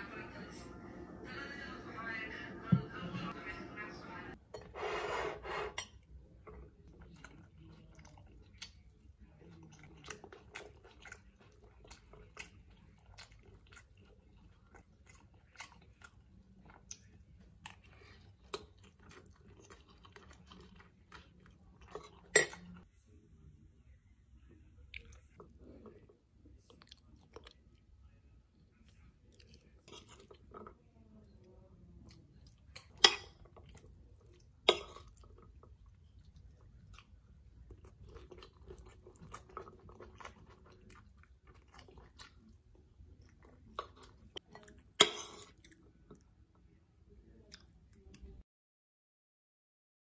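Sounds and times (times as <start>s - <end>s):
chewing with light crunching: 5.8s - 23.1s, 24.4s - 48.4s
fork clinking and scraping in bowl: 32.9s - 33.5s.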